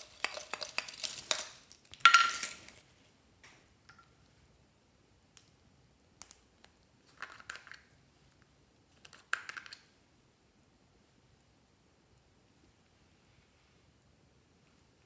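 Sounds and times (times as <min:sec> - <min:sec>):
plastic caps clicking: 0:07.1 - 0:07.9, 0:09.0 - 0:09.9.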